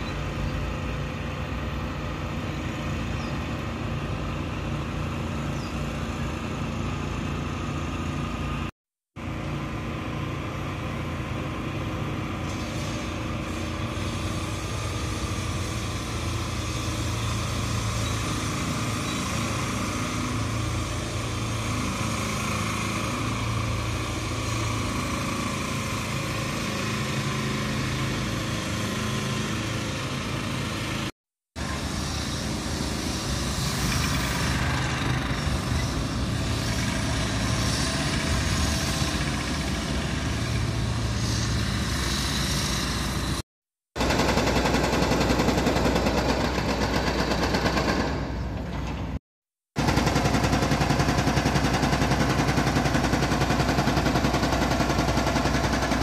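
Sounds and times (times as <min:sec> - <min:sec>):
diesel engines idling: 0:00.0 - 0:43.4.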